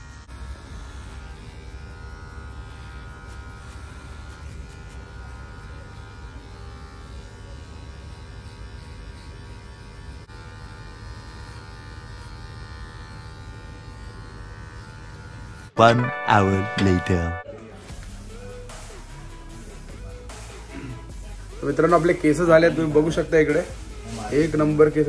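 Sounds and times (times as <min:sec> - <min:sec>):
electric hair clipper buzzing: 0:00.0 - 0:15.8.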